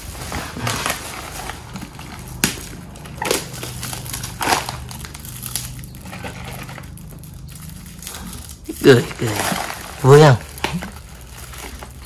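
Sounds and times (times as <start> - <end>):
carton crinkling rustles: 0.0 - 12.0.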